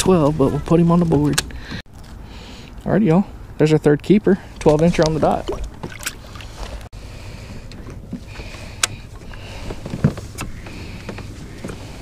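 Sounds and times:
water noise: 4.4 - 12.0
kayak clicks and knocks: 7.7 - 12.0.

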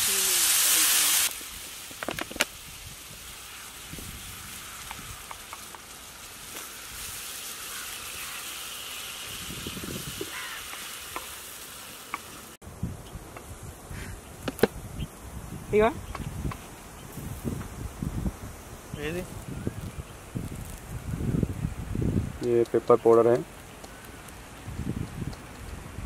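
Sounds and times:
loud hiss: 0.0 - 12.6
masala sizzling in a pan: 0.0 - 12.6.

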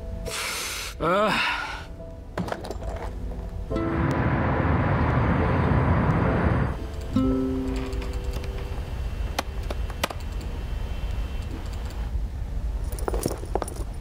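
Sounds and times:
low room hum: 1.1 - 14.0
held music notes: 3.3 - 9.7.

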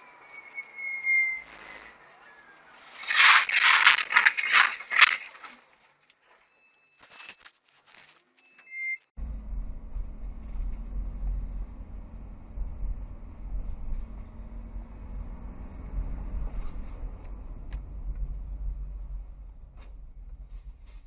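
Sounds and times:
car road rumble from inside: 9.2 - 21.0.

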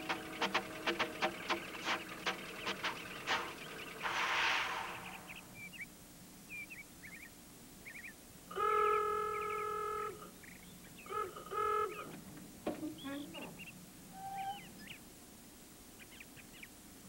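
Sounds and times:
faint bird chirps: 0.0 - 8.2, 8.8 - 12.1, 12.8 - 15.1, 16.0 - 16.8.

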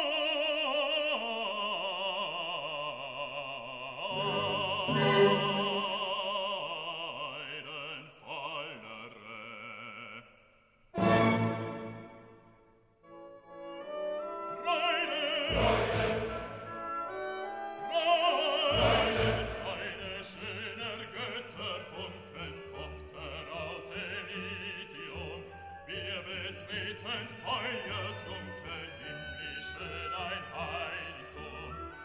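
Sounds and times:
operatic voice singing: 0.0 - 10.4, 14.3 - 32.0
orchestra playing: 4.1 - 6.0, 11.0 - 12.5, 13.2 - 24.2.

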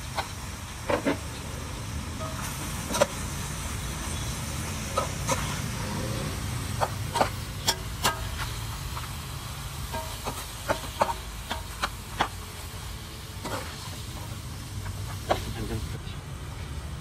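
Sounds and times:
spatula scraping a frying pan: 13.4 - 13.9.

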